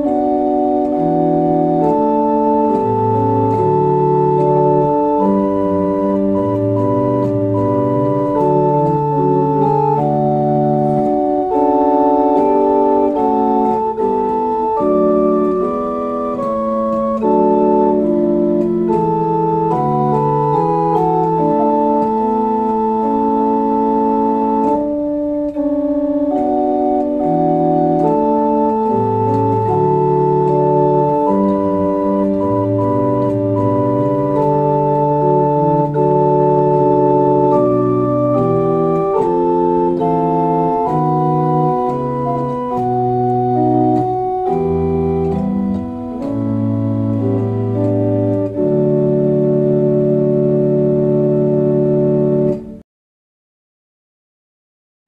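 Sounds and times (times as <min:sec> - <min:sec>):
pipe organ sustained chords: 0:00.0 - 0:52.8.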